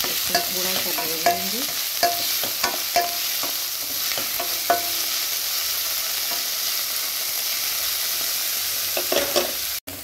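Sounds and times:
vegetables sizzling in oil: 0:00.0 - 0:10.0
spatula knocking against pan: 0:00.3 - 0:05.0.

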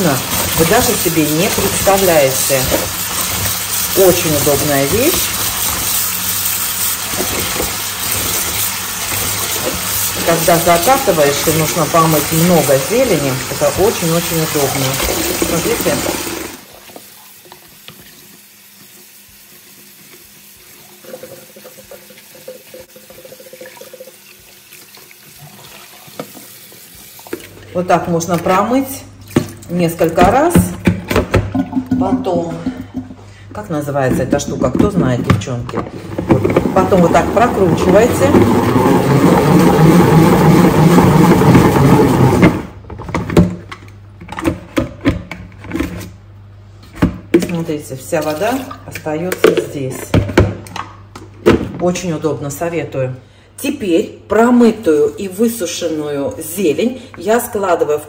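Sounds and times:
tap water splashing into sink: 0:07.1 - 0:10.2, 0:21.0 - 0:27.6
salad spinner whirring: 0:36.5 - 0:42.7.

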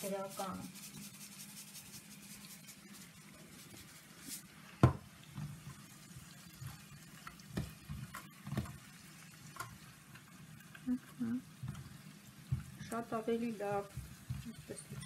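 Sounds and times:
onions sizzling in oil: 0:00.0 - 0:15.0
spatula scraping pan: 0:11.6 - 0:15.0.

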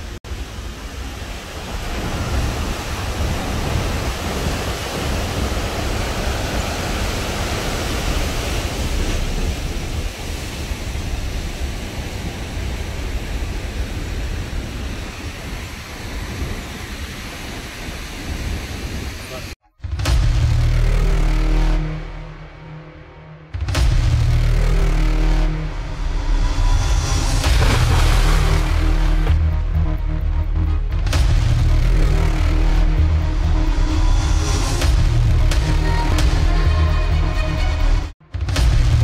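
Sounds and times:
water rushing: 0:00.0 - 0:19.6, 0:26.2 - 0:29.6
wind buffeting microphone: 0:01.0 - 0:19.5.

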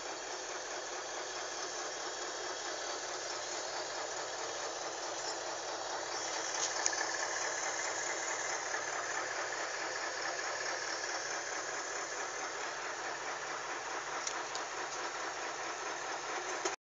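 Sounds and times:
diesel engine throbbing from cab: 0:00.0 - 0:16.8.

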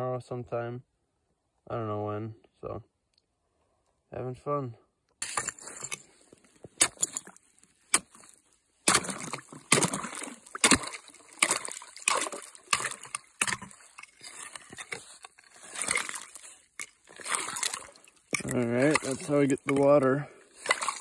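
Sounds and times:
stick knocking on ice: 0:06.7 - 0:21.0
sloshing through slush and water: 0:06.8 - 0:21.0.

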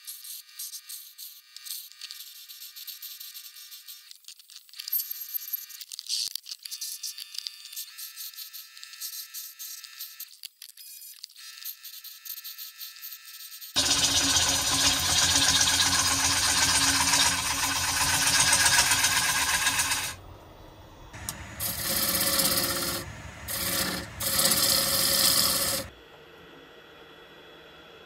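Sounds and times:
gouge cutting wood on a lathe: 0:13.8 - 0:20.2, 0:21.2 - 0:25.9.

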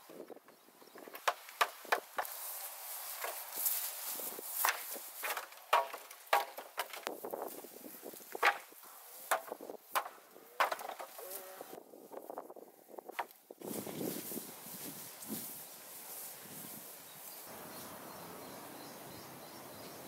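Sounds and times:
hammer knocking wooden boards: 0:01.1 - 0:02.3, 0:04.6 - 0:07.0, 0:08.4 - 0:11.2.

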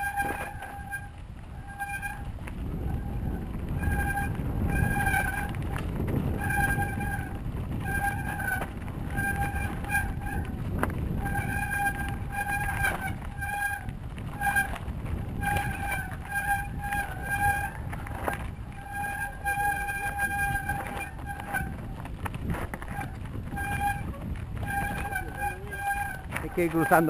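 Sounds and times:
bike rumbling on rocky trail: 0:00.0 - 0:27.0
wind on camera: 0:00.0 - 0:27.0
high-pitched squeal: 0:22.9 - 0:27.0.

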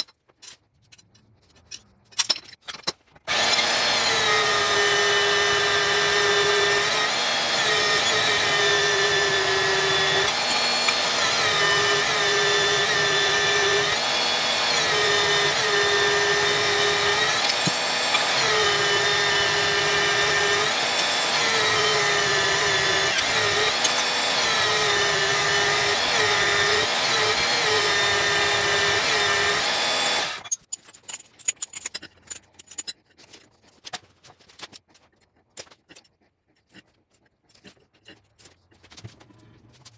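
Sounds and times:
band saw cutting steel: 0:03.3 - 0:30.5.

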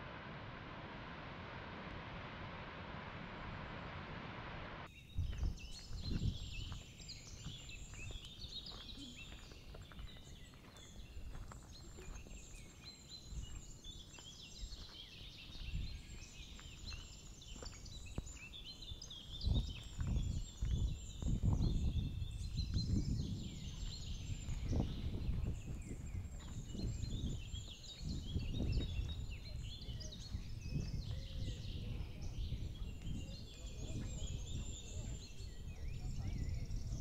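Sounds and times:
low rumbles: 0:00.0 - 0:06.7
small birds chirping: 0:04.9 - 0:37.0.

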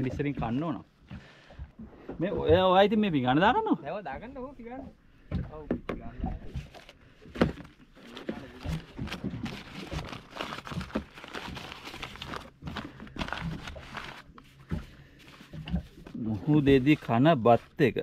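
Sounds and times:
paper crinkling and rustling: 0:06.6 - 0:18.0.

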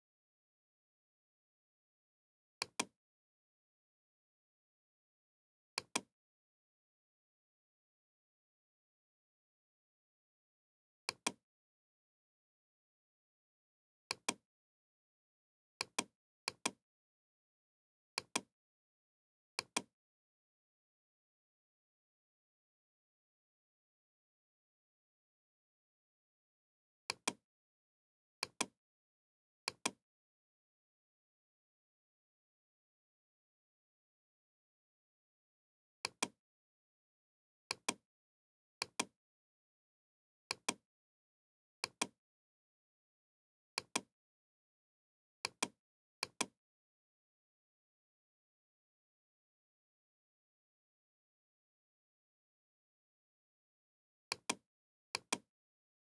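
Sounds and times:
computer mouse clicks: 0:05.8 - 0:06.1, 0:11.1 - 0:11.4, 0:36.0 - 0:36.4, 0:41.8 - 0:42.1, 0:45.4 - 0:46.6, 0:55.2 - 0:55.4.

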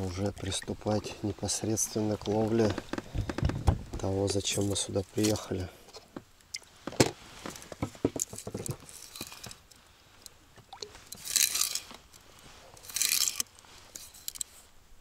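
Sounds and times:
crunchy rustles: 0:10.9 - 0:14.7.

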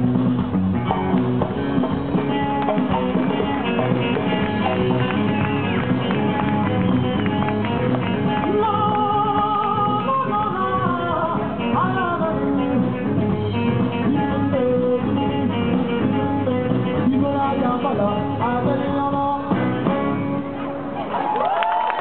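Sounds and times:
drums and djembe: 0:00.0 - 0:09.9
electric guitars: 0:00.0 - 0:22.0
person singing: 0:08.3 - 0:20.1.

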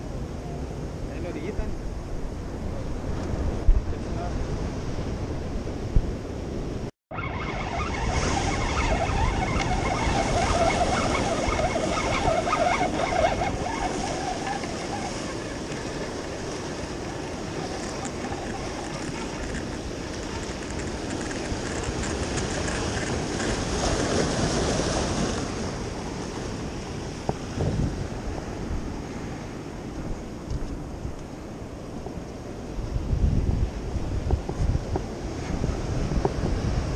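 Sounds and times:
wind buffeting the microphone: 0:00.0 - 0:36.9
ocean surf breaking over rocks: 0:07.1 - 0:36.9.

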